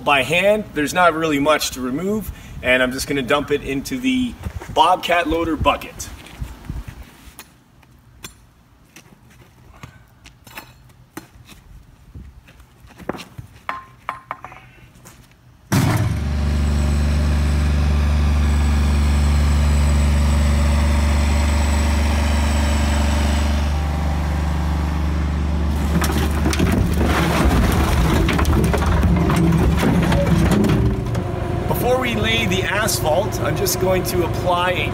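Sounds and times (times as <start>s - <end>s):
asphalt pieces knocking and scraping: 12.5s - 16.1s, 25.8s - 31.3s
loud engine running: 15.7s - 34.9s
clattering and rattling: 25.8s - 31.3s.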